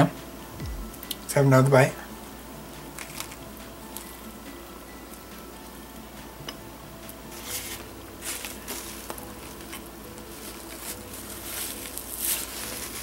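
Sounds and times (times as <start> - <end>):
paper napkin rustling: 7.3 - 13.0.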